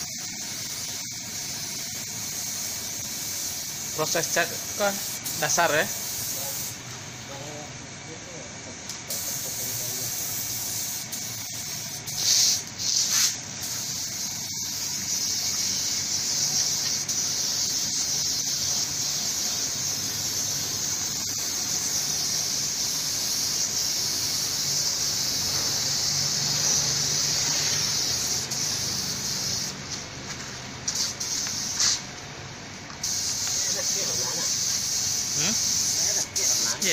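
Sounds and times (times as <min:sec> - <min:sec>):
paint spray gun hissing: 0:00.0 - 0:07.4, 0:08.9 - 0:32.2, 0:32.9 - 0:36.9.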